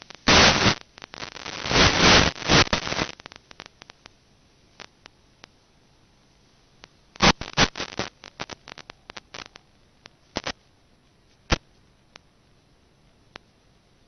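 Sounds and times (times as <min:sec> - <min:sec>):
electrical crackling: 0:00.0 - 0:04.2, 0:06.8 - 0:10.7, 0:11.4 - 0:12.2
faint hiss: 0:00.0 - 0:14.0.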